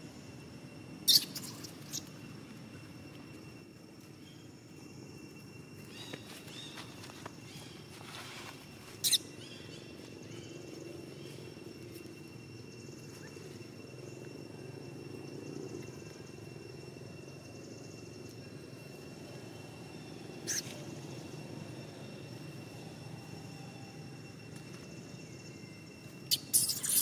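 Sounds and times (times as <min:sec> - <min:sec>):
faint steady high tone: 0:00.0 - 0:27.0
high-pitched squeaking calls: 0:01.0 - 0:02.2, 0:09.0 - 0:09.4, 0:20.4 - 0:20.8, 0:26.3 - 0:27.0.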